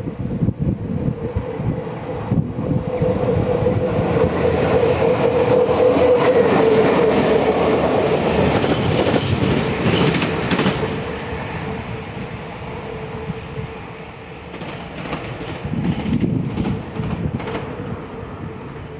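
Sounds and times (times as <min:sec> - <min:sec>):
electric locomotive whine: 0:00.0 - 0:18.9
train wheels rumbling on rails: 0:00.0 - 0:18.9
wheels clacking over rail joints: 0:04.2 - 0:12.5, 0:14.4 - 0:17.9.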